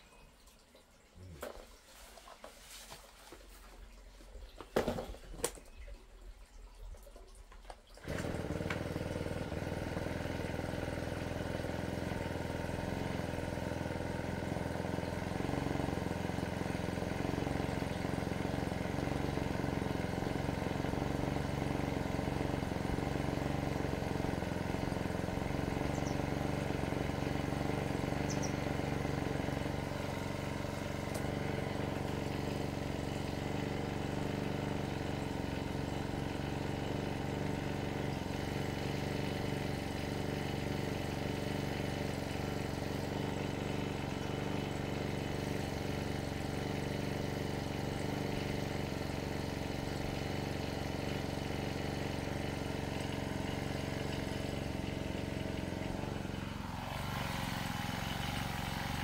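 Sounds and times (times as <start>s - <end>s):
engine running steadily: 7.6s - 59.0s.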